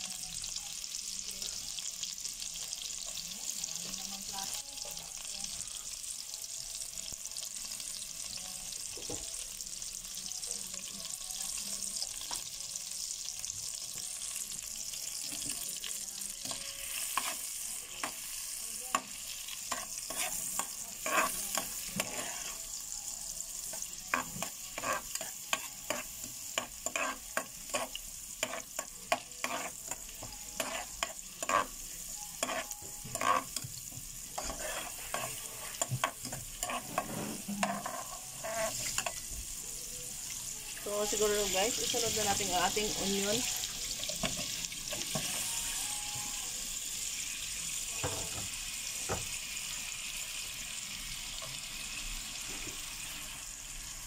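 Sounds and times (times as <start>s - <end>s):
garlic sizzling in butter: 0.0s - 54.0s
spoon scraping metal pot: 19.7s - 22.6s, 24.1s - 31.8s, 32.4s - 33.7s, 34.4s - 39.2s.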